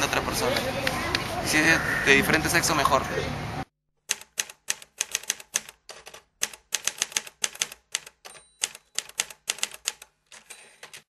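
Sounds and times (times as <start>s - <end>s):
typewriter keys clacking: 4.1s - 11.0s
faint typewriter bell ring: 8.2s - 9.6s, 10.3s - 11.0s.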